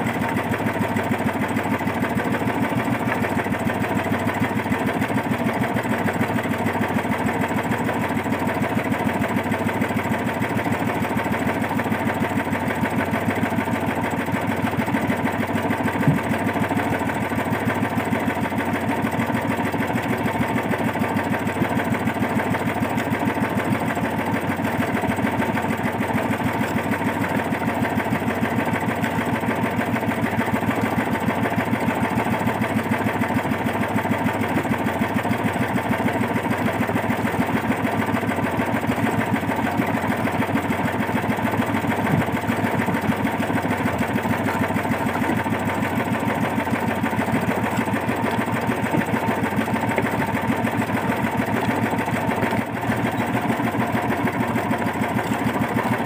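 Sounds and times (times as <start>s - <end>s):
small boat engine running: 0.0s - 56.0s
short knock: 16.0s - 16.3s.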